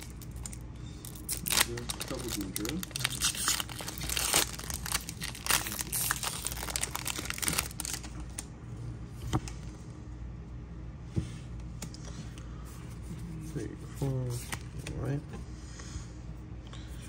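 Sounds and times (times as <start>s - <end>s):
handling cards: 0.0s - 8.4s, 12.9s - 15.2s
foil wrapper crinkling: 0.0s - 8.5s.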